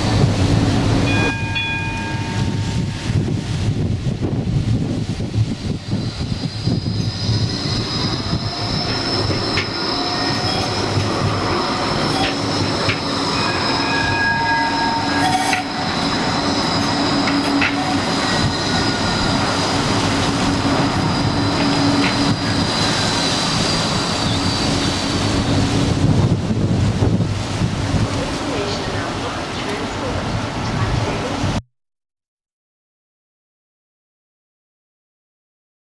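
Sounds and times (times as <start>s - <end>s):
low tram hum: 0.0s - 31.6s
tram wheels squealing: 5.6s - 26.8s.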